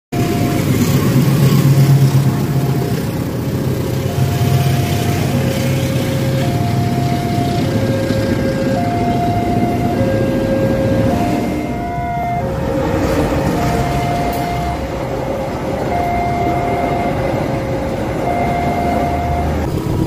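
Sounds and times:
two-tone crossing warning signal: 0.1 - 20.0
locomotive engine rumble: 0.2 - 20.0
train wheels on rails: 0.2 - 20.0.

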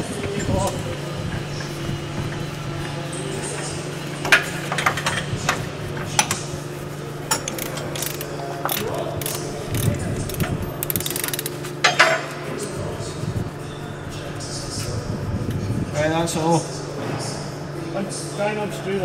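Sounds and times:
steady low hum: 0.0 - 19.0
metallic clanks and clicks: 7.2 - 12.2.

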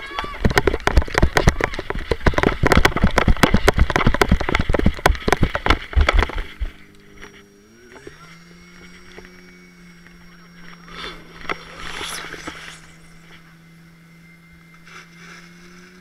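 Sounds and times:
running footsteps on grass: 0.0 - 6.8
steady low hum: 0.0 - 16.0.

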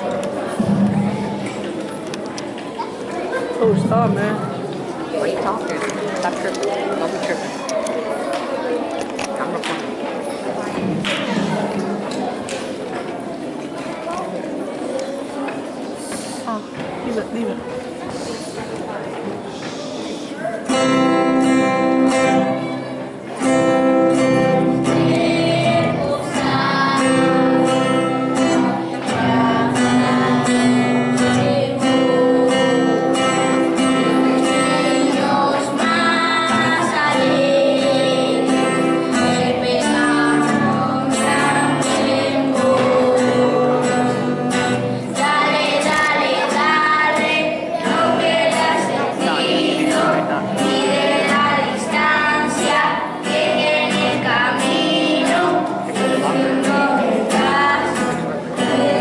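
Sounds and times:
strummed acoustic guitar: 0.0 - 2.2, 20.6 - 59.0
children singing together: 20.7 - 59.0.

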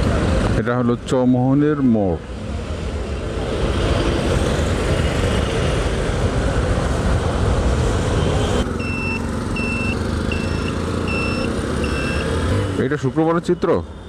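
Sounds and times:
motorcycle engine: 7.8 - 12.9
electronic beeper beeping: 8.8 - 12.4.

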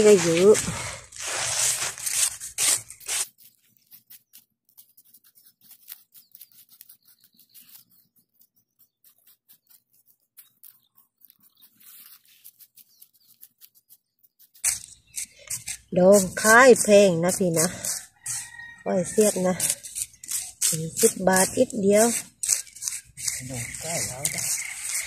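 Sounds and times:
metal scraper digging sand: 0.0 - 7.0, 11.5 - 25.0
hands raking sand: 0.0 - 25.0.

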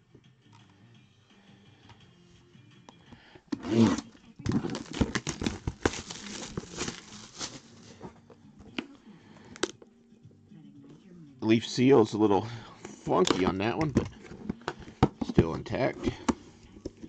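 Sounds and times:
plastic wrap crinkling: 4.5 - 8.0.

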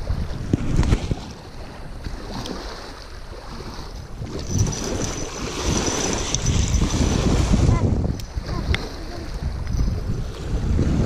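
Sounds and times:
small waves lapping: 0.0 - 11.0
wind buffeting microphone: 0.0 - 11.0
fish splashing in shallows: 0.9 - 7.6.

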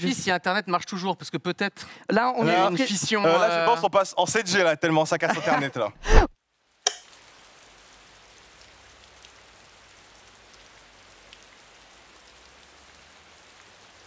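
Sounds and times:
faint steady rain: 1.9 - 14.0
single raindrop ticking: 6.8 - 7.3.

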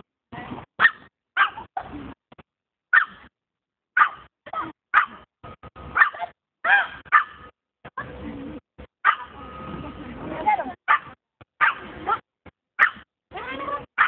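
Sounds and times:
dog barking: 0.8 - 2.0, 2.9 - 3.3, 4.0 - 5.3, 5.9 - 7.5, 9.0 - 9.4, 10.9 - 12.2, 12.8 - 13.1.

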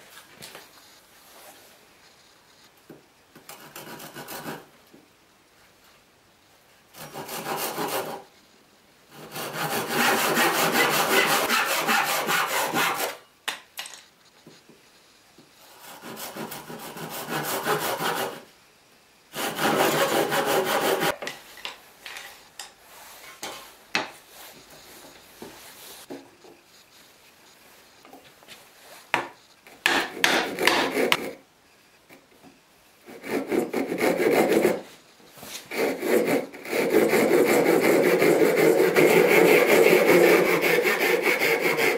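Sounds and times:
handsaw cutting wood: 7.0 - 8.2, 9.1 - 13.2, 15.7 - 18.4, 19.3 - 21.2, 29.9 - 31.4, 33.1 - 34.8, 35.6 - 41.9.

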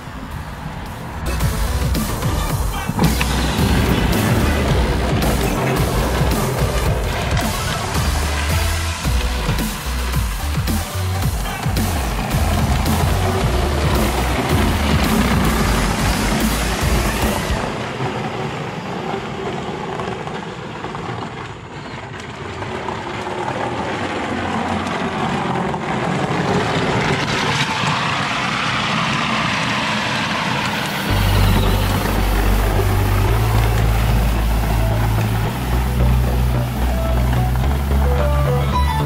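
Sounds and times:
background music with heavy bass beat: 0.0 - 17.8, 31.0 - 39.0
plastic tyres rolling on asphalt: 0.0 - 39.0
electric toy motor whirring: 30.8 - 36.5.

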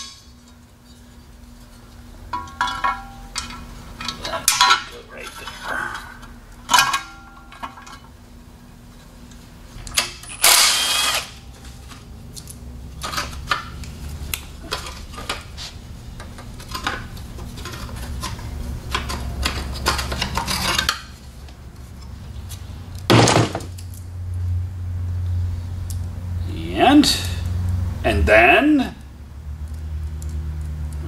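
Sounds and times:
metal tools clinking: 2.3 - 8.0
cordless power tool running: 10.4 - 11.4.

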